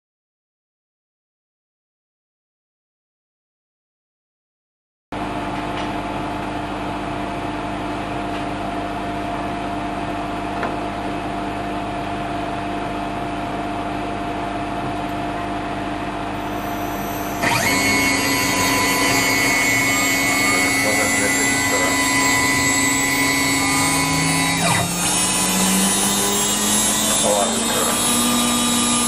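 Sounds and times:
machine hum: 5.2 - 29.0
router spindle whine: 16.2 - 29.0.

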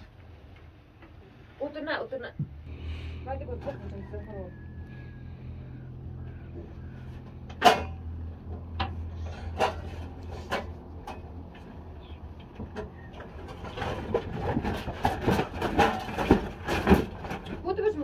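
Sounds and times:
low steady hum: 0.0 - 18.0
sharp knocks and clatters: 6.7 - 17.8.

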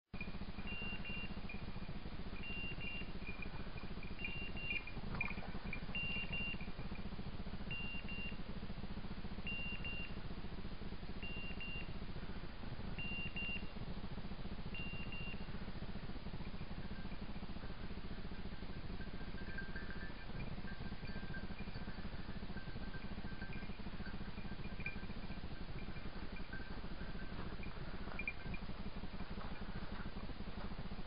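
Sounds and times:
beeper collar double beeps: 0.2 - 1.8, 2.4 - 7.0, 7.7 - 8.5, 9.4 - 10.2, 11.2 - 12.0, 12.9 - 13.8, 14.7 - 15.6, 18.7 - 28.7
steady low hum: 0.2 - 31.0.

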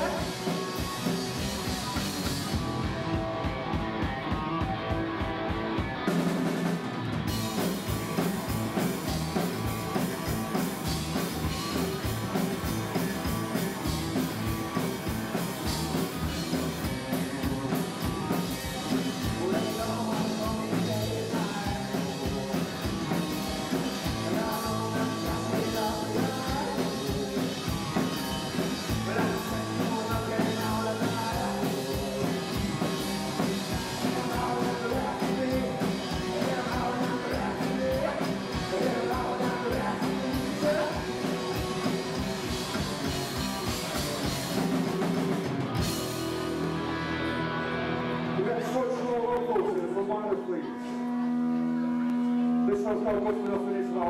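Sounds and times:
person singing: 0.0 - 1.1, 15.9 - 42.2
drum kit: 0.0 - 49.8
electric guitar: 0.0 - 54.0.

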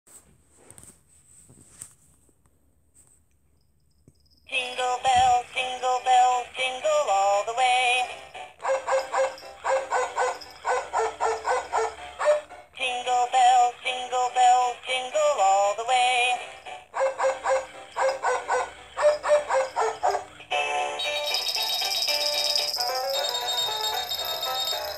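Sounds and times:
synthesized sung tune from toy: 4.5 - 8.2, 12.8 - 16.5.

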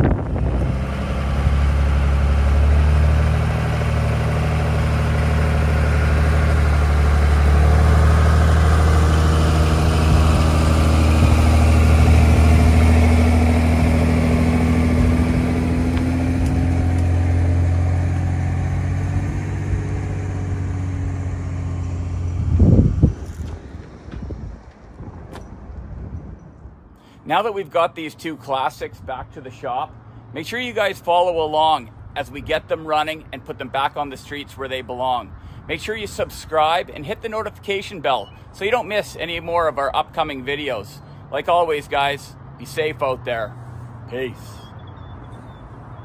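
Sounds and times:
pickup truck engine running: 0.0 - 25.7.

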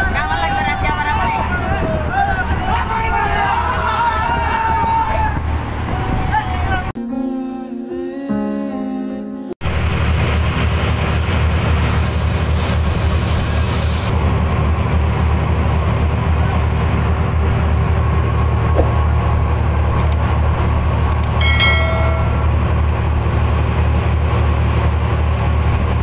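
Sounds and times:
boat engine droning: 9.6 - 26.0
brief high-pitched tone: 21.4 - 22.7.

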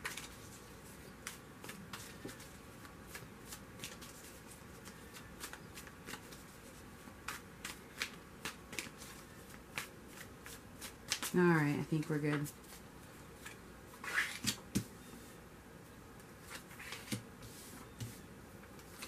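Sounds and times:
cards shuffled by hand: 1.2 - 11.4, 13.4 - 14.8.

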